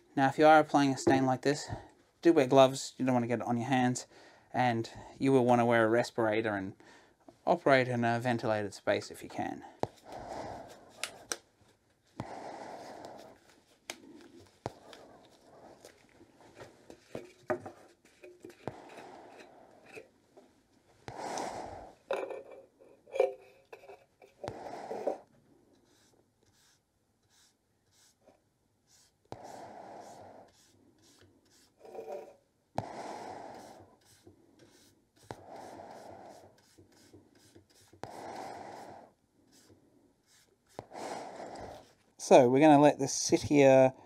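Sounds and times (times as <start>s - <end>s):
paintbrush swishing on wood: 12.1s - 20.0s, 25.8s - 28.2s, 28.9s - 42.4s.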